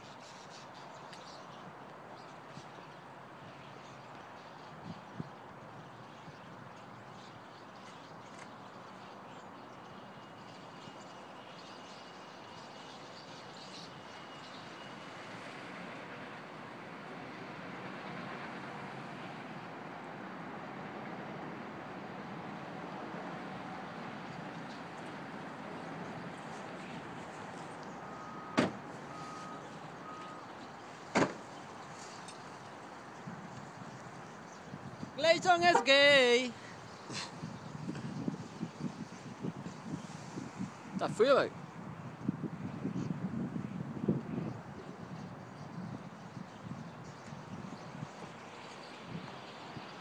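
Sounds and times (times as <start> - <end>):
flock of birds chirping: 0.0 - 16.6, 23.9 - 41.2, 44.1 - 50.0
parking lot background din: 26.3 - 34.2
car doors slamming: 28.6 - 28.8, 31.1 - 31.5.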